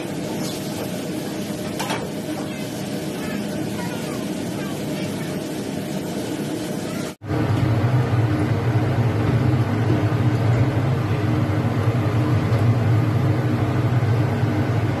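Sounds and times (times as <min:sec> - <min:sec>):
kitchen equipment humming: 0:00.0 - 0:15.0.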